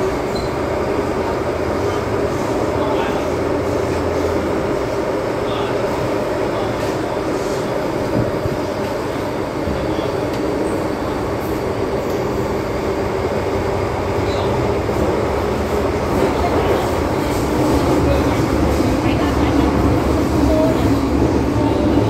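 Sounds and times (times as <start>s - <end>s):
train equipment hum: 0.0s - 22.0s
train wheels on rail rumble: 0.0s - 22.0s
faint high squeaks: 0.3s - 0.6s.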